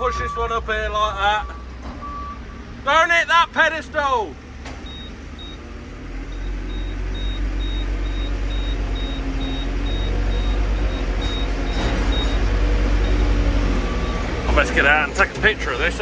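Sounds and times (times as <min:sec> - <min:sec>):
reversing alarm beeping: 0:00.0 - 0:00.6, 0:01.4 - 0:02.7, 0:04.8 - 0:05.7, 0:06.3 - 0:14.4
diesel engine under load: 0:00.0 - 0:16.0.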